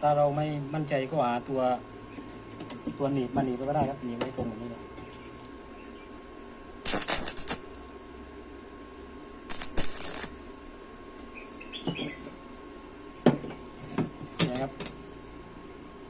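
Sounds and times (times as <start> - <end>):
welding arc crackling and hissing: 6.8 - 7.9, 9.4 - 10.7.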